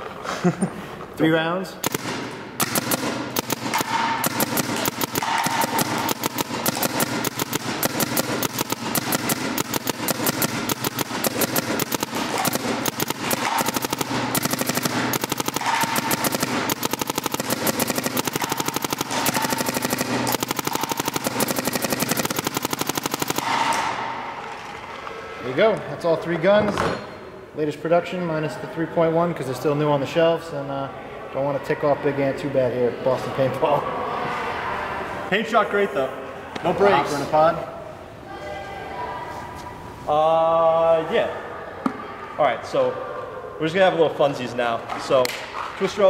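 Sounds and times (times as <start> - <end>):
paintball markers firing rapidly: 1.8 - 24.7.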